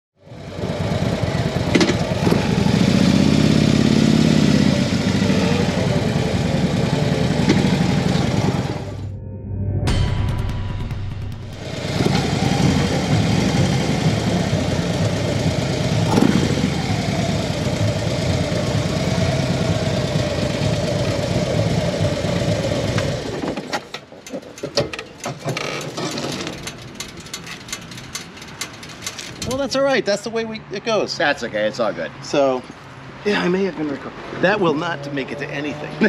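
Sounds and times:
motorcycle engine idling: 0.2 - 9.0, 11.6 - 23.4.

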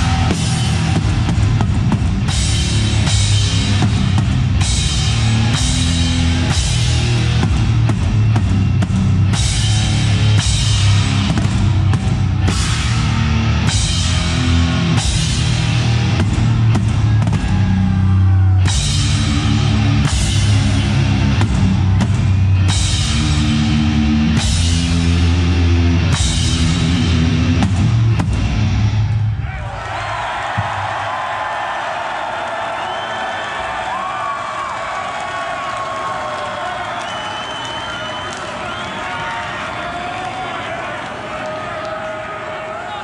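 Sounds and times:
heavy metal band playing live: 0.0 - 29.4.

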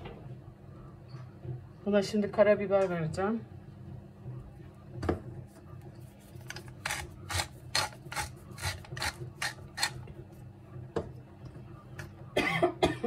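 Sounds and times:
pepper mill grinding: 6.5 - 10.0.

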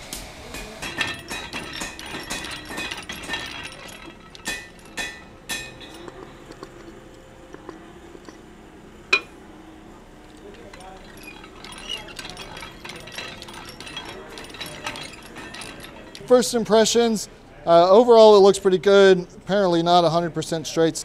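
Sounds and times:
steel clinking on steel: 0.5 - 9.4, 10.2 - 17.3.

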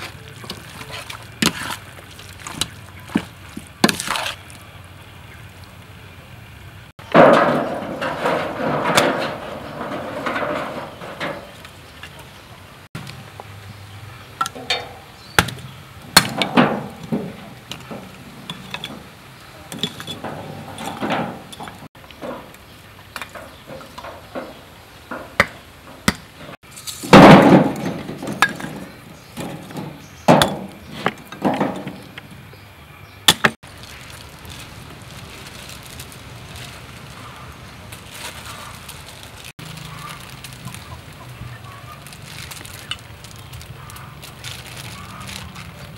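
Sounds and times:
fuel clattering: 0.0 - 32.7
charcoal knocking against steel barrel: 7.0 - 11.7, 14.4 - 19.1, 19.7 - 22.6, 23.2 - 32.3.

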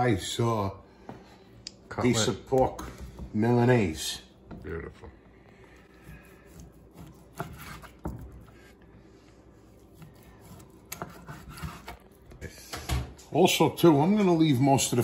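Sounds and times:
knife sawing through meat: 5.9 - 8.0, 9.7 - 12.2.

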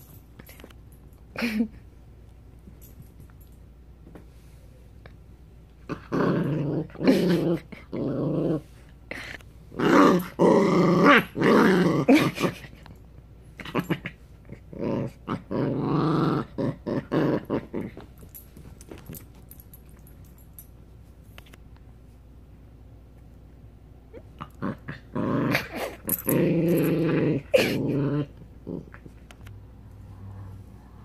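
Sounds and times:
puppy growling: 5.9 - 12.9, 13.6 - 18.1, 24.1 - 29.4.

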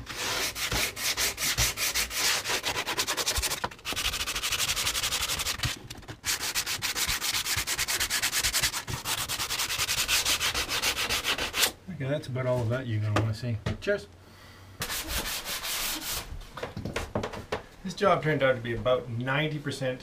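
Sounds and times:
hand sanding wood: 0.0 - 11.7, 14.8 - 16.3.

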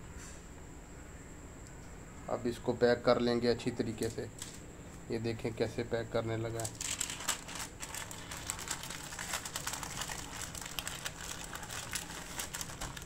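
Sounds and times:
wrapping paper crinkling: 6.5 - 13.0.

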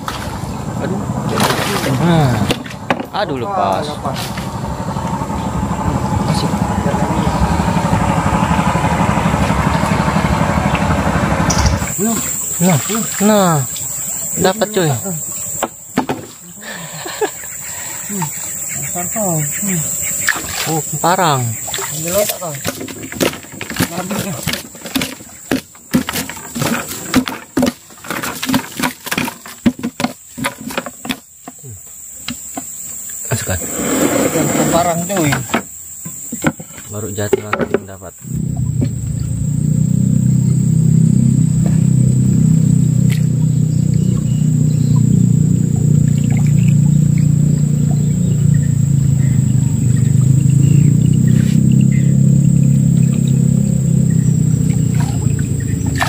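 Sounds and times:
high insect drone: 0.0 - 56.0
fish flopping on wooden floor: 1.3 - 3.1, 21.6 - 31.6.

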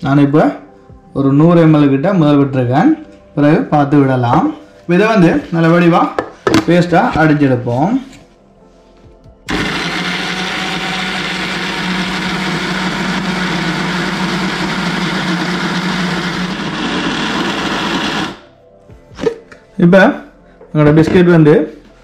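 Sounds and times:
mixer grinder humming: 9.5 - 18.5.

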